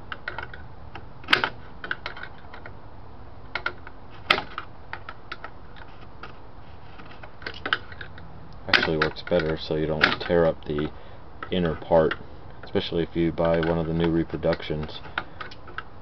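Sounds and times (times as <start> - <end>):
screwdrivers clicking on metal nut: 7.0 - 15.9.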